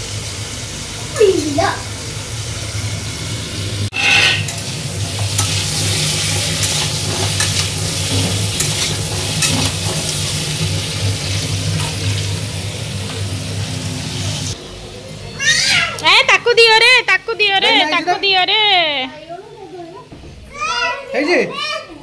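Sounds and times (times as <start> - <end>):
curry sizzling in pot: 0.0 - 14.6
metal ladle scraping pot: 3.9 - 10.3.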